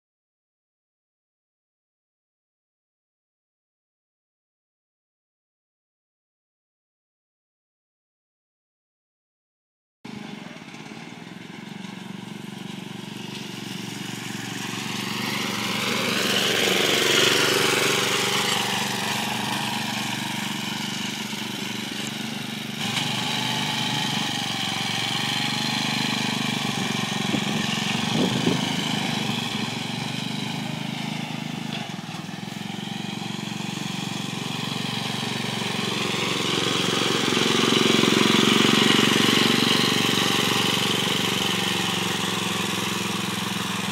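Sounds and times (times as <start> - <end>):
small tractor engine running: 10.1 - 43.9.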